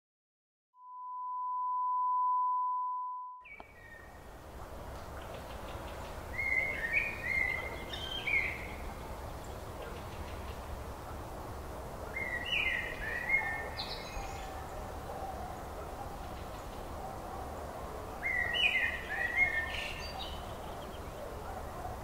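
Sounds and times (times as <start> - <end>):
steady test beep: 0.8 - 3.4.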